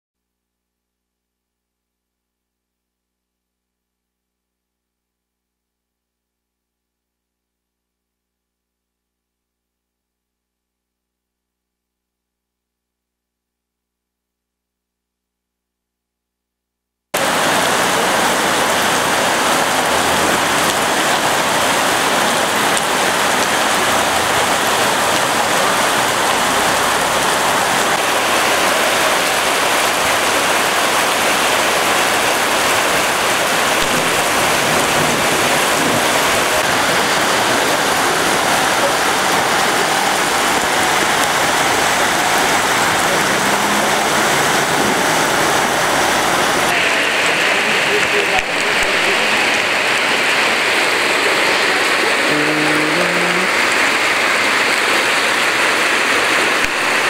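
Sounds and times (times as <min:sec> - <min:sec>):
heavy rain pouring: 0:17.2 - 0:57.0.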